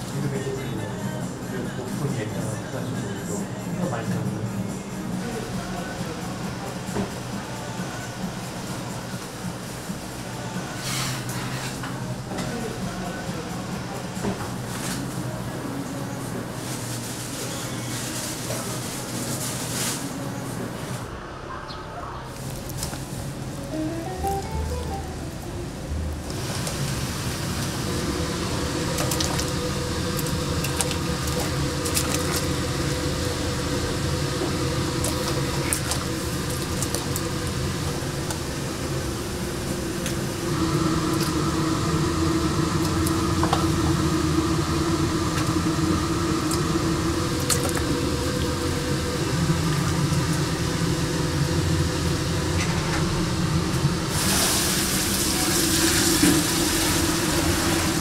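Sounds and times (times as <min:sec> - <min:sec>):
constant hum: 0:00.0 - 0:58.0
steady whine: 0:22.3 - 0:58.0
rushing bubbling water hiss: 0:53.5 - 0:58.0.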